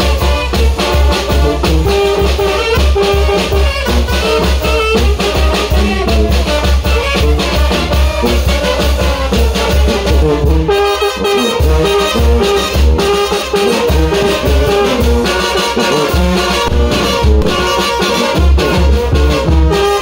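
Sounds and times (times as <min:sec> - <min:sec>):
brass band playing: 0:00.0 - 0:20.0
bass drum: 0:12.3 - 0:19.8
sousaphone bass notes: 0:13.8 - 0:15.5, 0:16.4 - 0:18.3.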